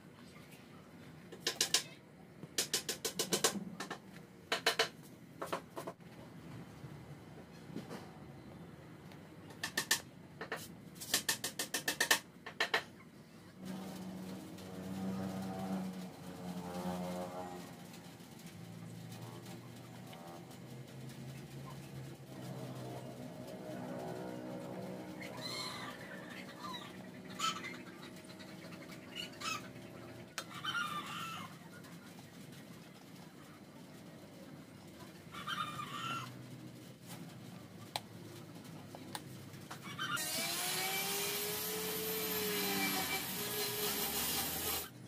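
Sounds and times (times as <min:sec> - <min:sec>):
chickens clucking: 0:24.2 - 0:40.2.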